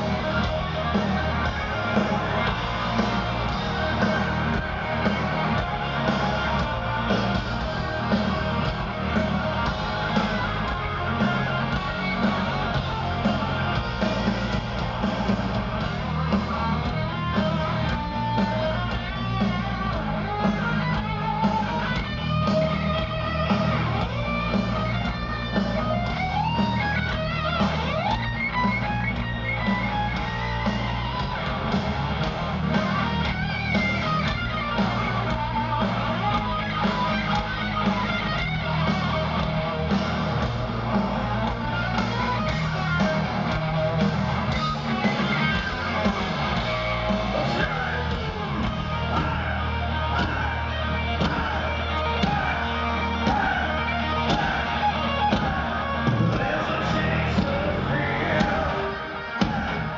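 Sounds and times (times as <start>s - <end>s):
bass guitar: 0.0s - 59.9s
drums: 0.0s - 59.9s
electric guitar solo: 16.6s - 39.9s.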